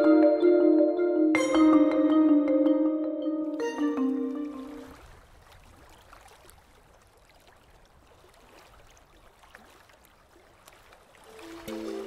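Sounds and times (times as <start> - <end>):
low underwater water murmur: 4.4 - 12.0.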